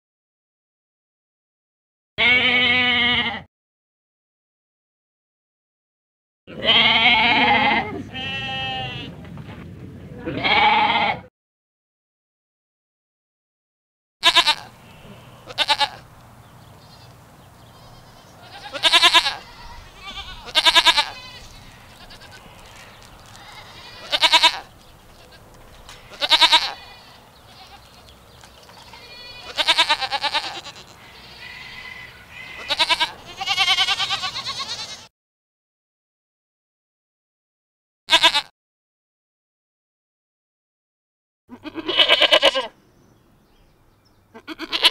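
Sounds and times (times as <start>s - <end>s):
goats bleating: 2.2s - 3.5s, 6.5s - 9.1s, 10.2s - 11.3s, 14.2s - 16.1s, 16.8s - 35.1s, 38.1s - 38.5s, 41.5s - 42.8s, 44.3s - 44.9s.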